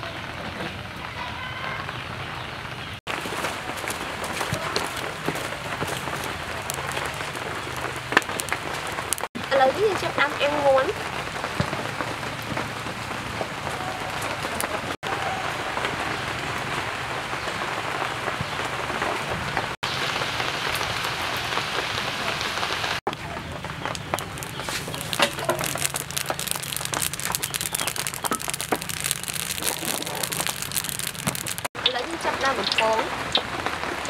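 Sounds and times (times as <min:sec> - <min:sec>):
chicken sizzling on a grill: 0:19.9 - 0:34.0.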